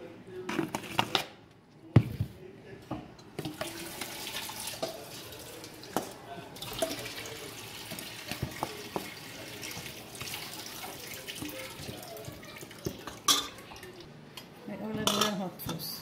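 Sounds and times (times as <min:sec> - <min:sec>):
tap water running into sink: 0:03.4 - 0:14.0.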